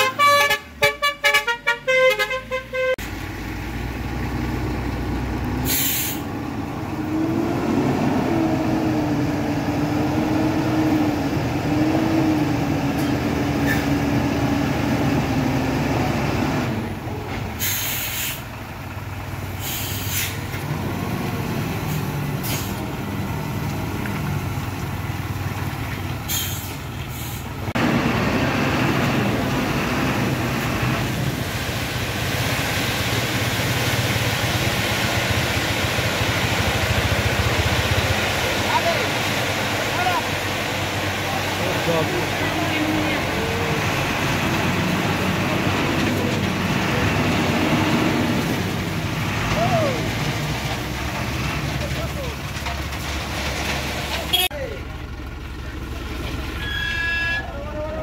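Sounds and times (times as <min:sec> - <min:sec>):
vehicle horn tooting: 0:00.0 - 0:03.0, 0:54.3 - 0:54.6, 0:56.6 - 0:57.6
diesel truck engine running: 0:03.0 - 0:58.0
air brake hiss: 0:05.6 - 0:06.3, 0:17.6 - 0:18.5, 0:19.6 - 0:20.4, 0:26.3 - 0:27.5.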